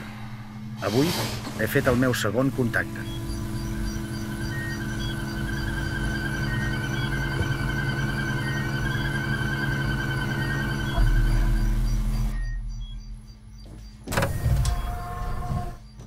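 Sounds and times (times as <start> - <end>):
layered electronic hum: 0.0 - 16.0
slow warbling tone: 2.8 - 13.0
deep low rumble: 3.0 - 13.6.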